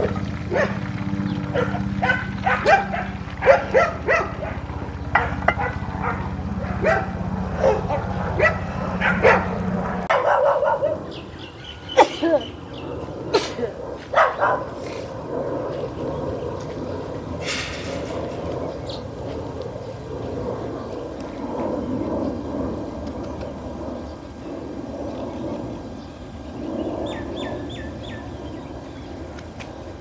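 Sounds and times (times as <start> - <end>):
steady low hum: 0.0 - 30.0
dog barking: 0.5 - 0.8, 1.5 - 11.1, 14.1 - 14.8.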